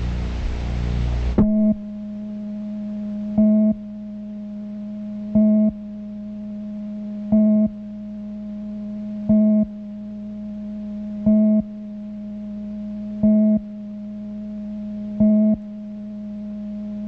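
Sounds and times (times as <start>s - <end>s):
electronic drone tone: 0.0s - 17.0s
short electronic beep: 1.4s - 1.8s.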